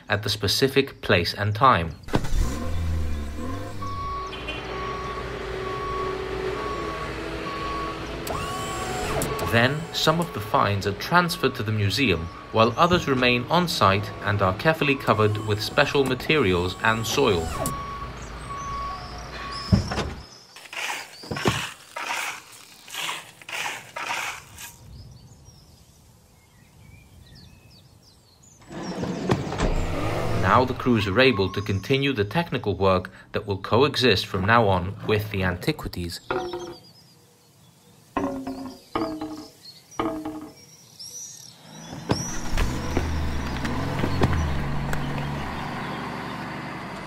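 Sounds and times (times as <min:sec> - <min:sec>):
faint birds chirping: 0:00.0 - 0:47.0
truck engine running: 0:02.1 - 0:19.7, 0:42.1 - 0:47.0
truck reversing alarm beeping: 0:02.2 - 0:20.2, 0:30.5 - 0:31.9
shovels scraping soil: 0:20.6 - 0:24.8.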